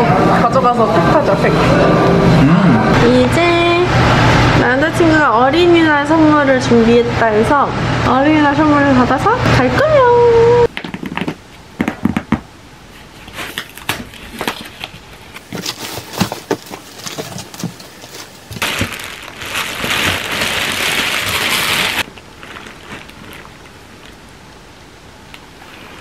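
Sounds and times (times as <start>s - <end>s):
cardboard box being opened: 13.4s - 23.6s
plastic bag crinkling and tearing: 13.6s - 24.2s.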